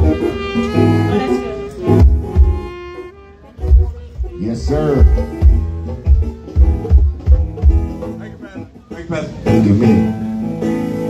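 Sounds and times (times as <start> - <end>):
live band playing: 0.0 - 11.0
bass drum hits: 1.9 - 2.6.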